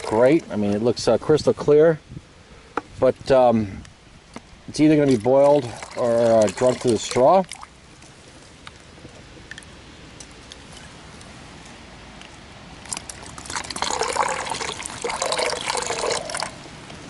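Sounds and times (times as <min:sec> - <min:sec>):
water pouring into plastic bottle: 0:00.0 - 0:00.3, 0:05.0 - 0:07.7, 0:12.9 - 0:16.6
faint stream trickle: 0:00.0 - 0:01.6, 0:04.5 - 0:17.0.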